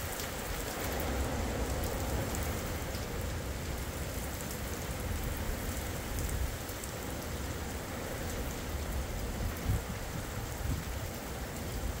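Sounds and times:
torrential rain on pavement: 0.0 - 12.0.

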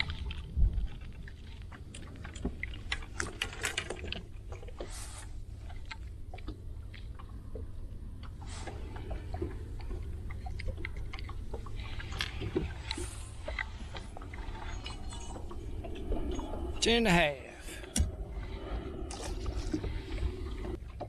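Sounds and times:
wind rumbling on microphone: 0.0 - 21.0.

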